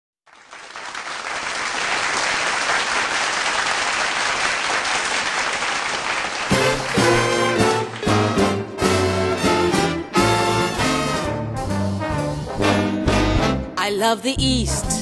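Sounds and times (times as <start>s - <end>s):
audience applause: 0.3s - 9.6s
big band brass playing: 6.5s - 13.8s.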